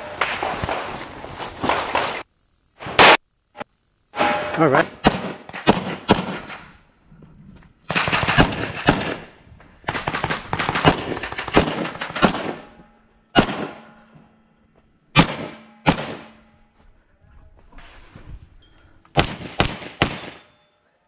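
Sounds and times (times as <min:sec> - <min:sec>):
rapid pistol fire: 0:05.0 - 0:06.7, 0:07.9 - 0:12.8, 0:13.4 - 0:13.9, 0:15.2 - 0:16.4, 0:19.2 - 0:20.5.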